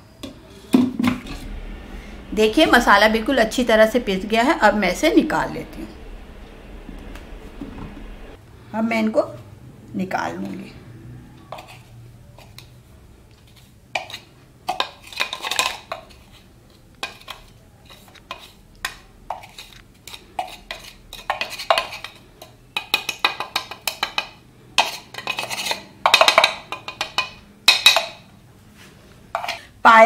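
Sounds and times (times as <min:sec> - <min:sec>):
metal spoon scraping a jar: 0:11.5 - 0:12.7, 0:13.5 - 0:18.6, 0:19.3 - 0:22.6, 0:24.8 - 0:27.3.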